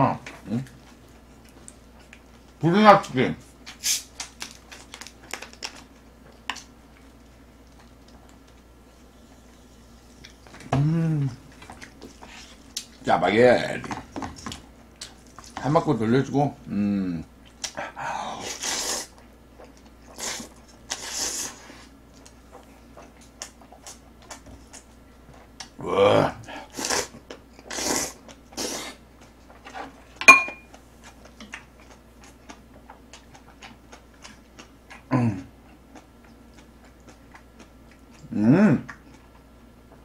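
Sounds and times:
slurping and chewing noodles: 17.6s - 25.7s, 26.4s - 30.1s
sharp clink: 30.3s - 30.6s.

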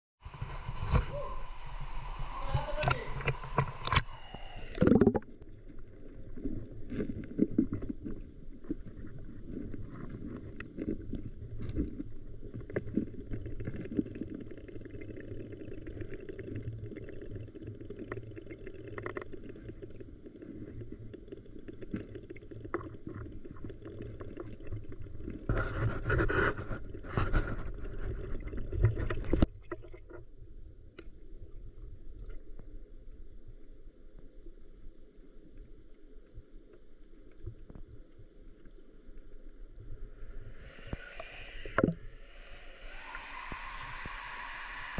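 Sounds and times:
muffled rush of water underwater: 0.2s - 44.9s
small clicks and crackles: 5.4s - 30.3s, 32.2s - 39.8s
churning water bursts: 40.4s - 44.9s.

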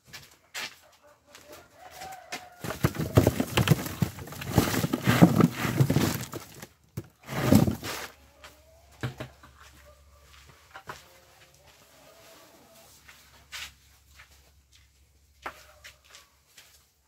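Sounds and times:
cucumbers tumbling into crate: 2.6s - 8.1s.

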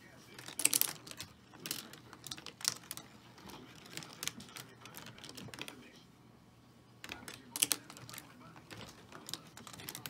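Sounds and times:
marbles clattering on wooden tracks: 0.4s - 5.8s.

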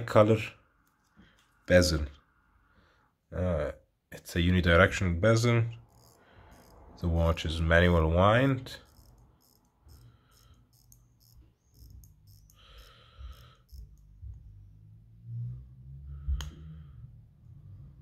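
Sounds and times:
watch winding ratchet clicks: 5.8s - 7.0s, 8.8s - 14.4s.

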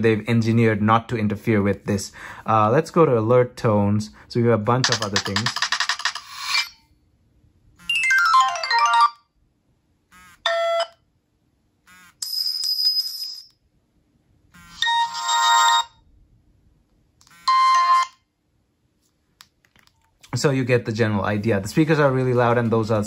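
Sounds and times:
phone alert tones: 7.8s - 9.2s, 14.6s - 15.9s, 17.3s - 18.2s.

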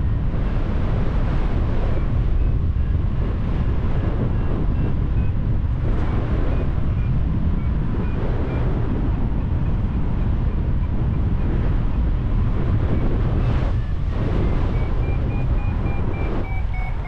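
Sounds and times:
wind buffeting microphone: 0.0s - 17.0s
faint high peeps: 14.9s - 17.0s.

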